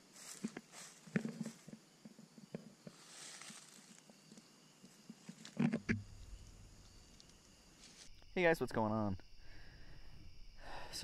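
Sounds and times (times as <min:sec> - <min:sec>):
footsteps in dry leaves: 0:02.9 - 0:04.1.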